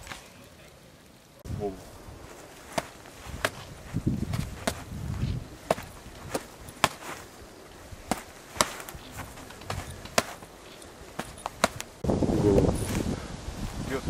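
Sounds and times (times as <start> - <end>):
gloved punches smacking: 2.6 - 7.3, 7.9 - 12.0.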